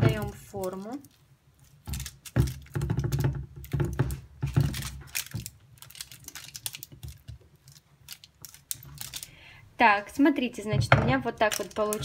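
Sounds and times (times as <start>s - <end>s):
spatula patting sticky mixture: 0.0s - 9.2s
parchment paper crinkling: 0.1s - 9.4s, 11.2s - 12.0s.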